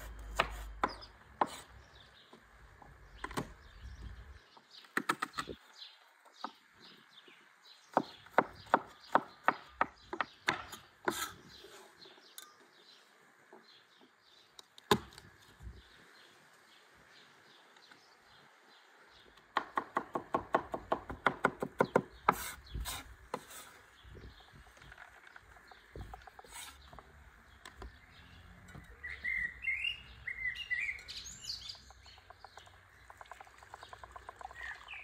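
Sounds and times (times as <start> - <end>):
cleaver chopping on wooden board: 0.1 - 1.6, 7.9 - 11.3, 14.9 - 15.2, 19.5 - 23.5.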